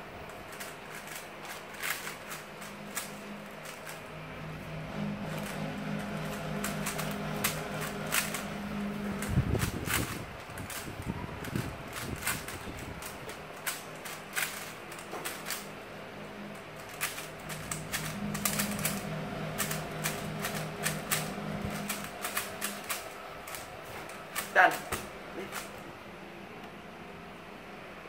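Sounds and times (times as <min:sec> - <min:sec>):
steady low hum: 0:00.0 - 0:28.0
plastic puzzle cube clicking: 0:16.8 - 0:25.7.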